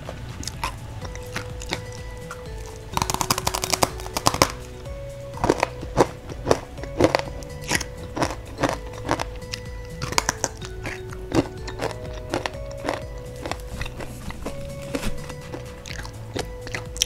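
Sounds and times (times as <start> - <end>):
soft background music: 0.0 - 17.0
crunching snack sticks: 0.4 - 4.6, 5.4 - 17.0.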